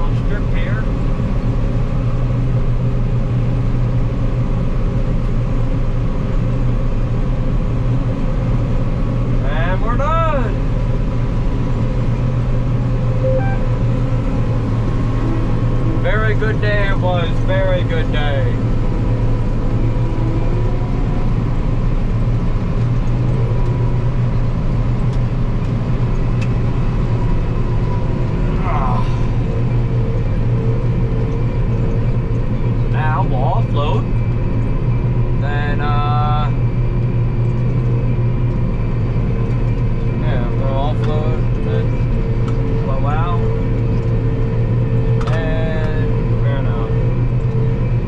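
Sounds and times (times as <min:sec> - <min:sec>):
combine harvester engine droning: 0:00.0 - 0:48.0
thin steady whine: 0:13.0 - 0:48.0.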